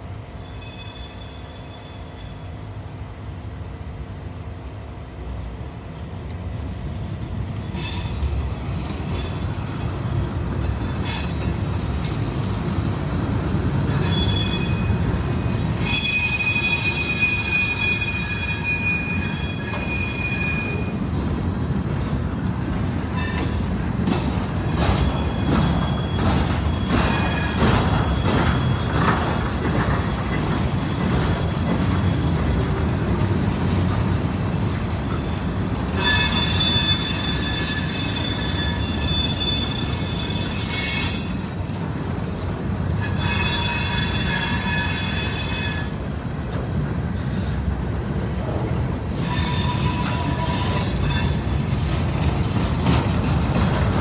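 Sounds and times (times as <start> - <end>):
freight train rumbling: 0.0 - 54.0
high wheel squeal: 0.3 - 2.6, 7.6 - 8.4, 13.8 - 21.0, 23.1 - 23.7, 24.5 - 32.8, 34.7 - 41.6, 42.9 - 46.1, 48.4 - 51.9
wheels clicking over track: 23.4 - 34.3, 50.1 - 54.0.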